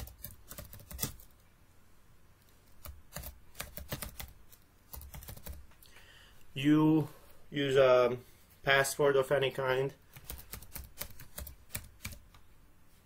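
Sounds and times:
keyboard typing: 0:00.0 - 0:01.4, 0:02.6 - 0:05.7, 0:10.1 - 0:12.4.

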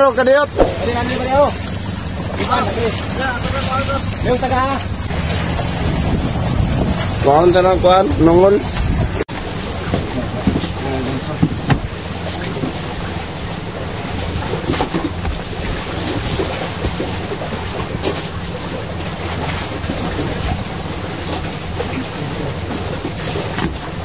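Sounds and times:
boat engine running: 0:00.0 - 0:24.0
sea noise: 0:00.0 - 0:24.0
wind: 0:00.0 - 0:24.0
knocks on deck: 0:11.4 - 0:11.9.

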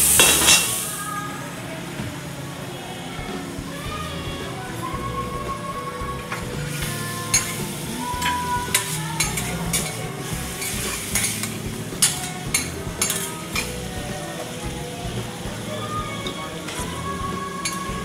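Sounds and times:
food sizzling on hot plate: 0:00.0 - 0:01.2, 0:06.7 - 0:14.6
metal spatulas clacking on griddle: 0:10.6 - 0:13.7.

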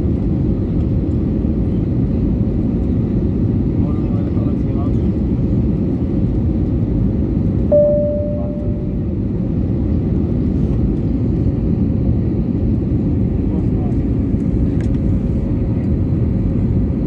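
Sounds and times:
jet cabin engine rumble: 0:00.0 - 0:17.0
cabin chime tone: 0:07.7 - 0:09.0.

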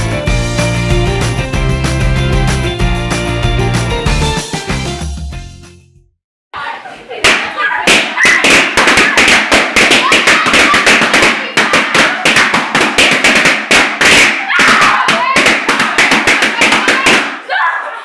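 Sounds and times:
balloons popping: 0:07.2 - 0:17.4.

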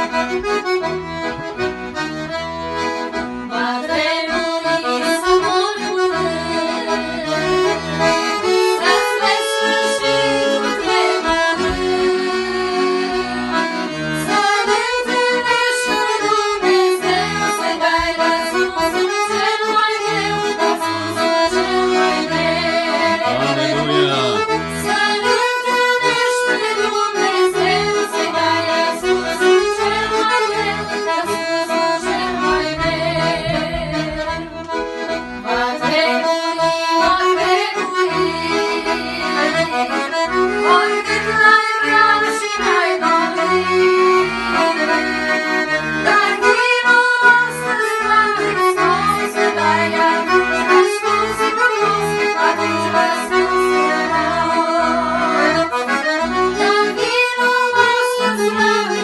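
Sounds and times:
piano accordion playing: 0:00.0 - 0:59.0
women singing together: 0:03.6 - 0:07.5, 0:08.7 - 0:23.2, 0:24.7 - 0:34.5, 0:35.5 - 0:39.9, 0:40.6 - 0:43.5, 0:46.0 - 0:52.2, 0:52.9 - 0:55.6, 0:56.6 - 0:59.0.

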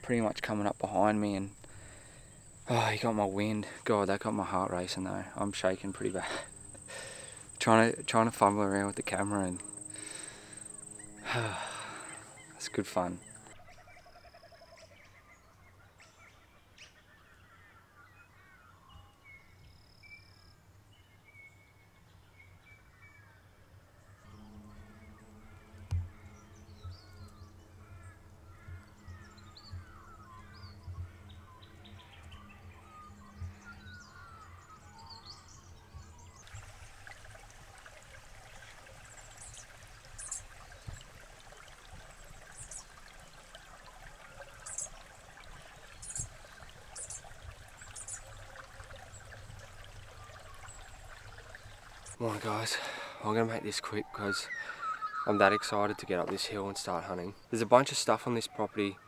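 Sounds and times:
hiss like running water: 0:00.0 - 0:13.6, 0:36.4 - 0:53.3
small birds chirping: 0:00.0 - 0:21.4, 0:38.5 - 0:59.0
steady low drone: 0:05.3 - 0:13.6, 0:24.3 - 0:36.3.

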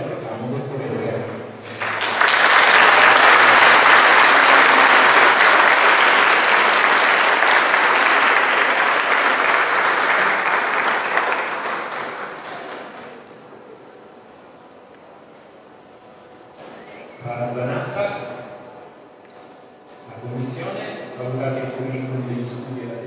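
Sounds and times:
audience applauding: 0:01.6 - 0:13.4.

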